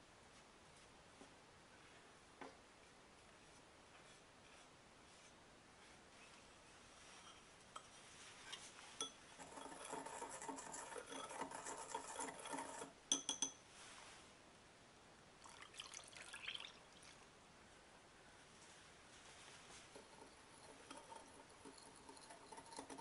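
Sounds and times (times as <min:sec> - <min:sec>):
whisk clinking on glass: 0:09.0 - 0:13.6, 0:20.1 - 0:23.0
whisk rattling in glass bowl: 0:09.4 - 0:13.5, 0:19.9 - 0:23.0
milk pouring into bowl: 0:15.4 - 0:17.3.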